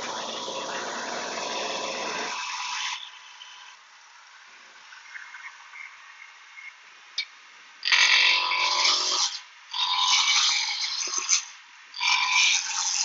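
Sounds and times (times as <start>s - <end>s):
lathe motor running: 0.0s - 3.0s.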